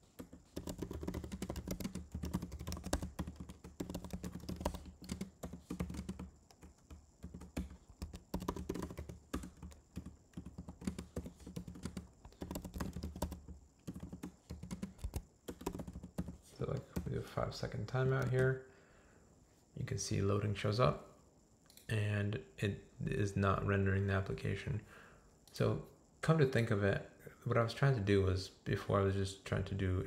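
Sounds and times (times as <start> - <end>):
computer keyboard typing: 0.0 - 17.3.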